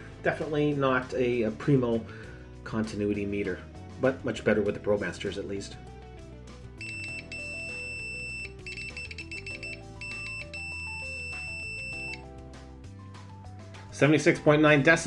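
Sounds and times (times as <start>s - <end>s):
soft background music: 0.0s - 15.0s
meter continuity beeping: 6.8s - 12.2s.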